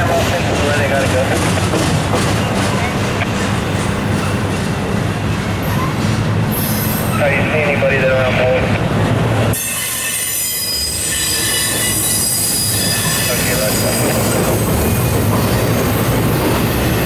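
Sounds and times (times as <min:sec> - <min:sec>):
diesel locomotive rumble: 0:00.0 - 0:17.0
freight car wheels squealing: 0:09.6 - 0:15.7.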